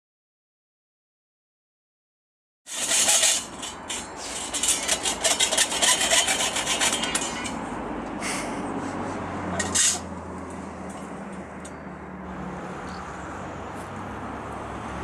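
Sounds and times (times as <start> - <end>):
hacksaw cutting steel: 2.7 - 7.7, 9.5 - 10.1.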